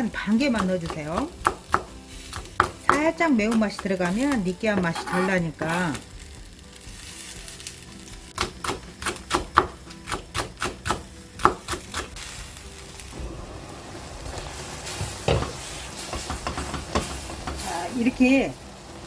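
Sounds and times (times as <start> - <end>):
vegetables sizzling in a pan: 0.0 - 19.0
spatula stirring in a pan: 14.4 - 18.0.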